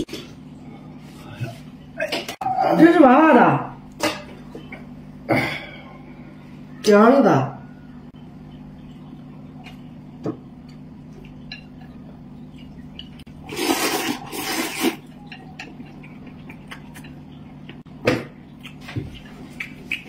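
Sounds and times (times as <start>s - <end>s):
steady low hum: 0.0s - 20.0s
man slurping noodles: 13.5s - 15.0s.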